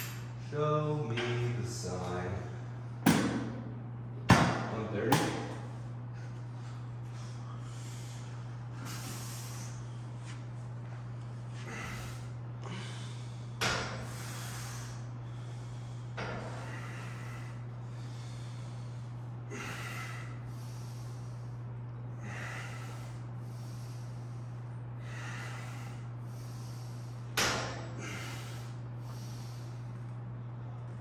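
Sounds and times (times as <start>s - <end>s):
steady low hum: 0.0s - 31.0s
man breathing forcefully: 6.1s - 10.4s, 11.4s - 30.0s.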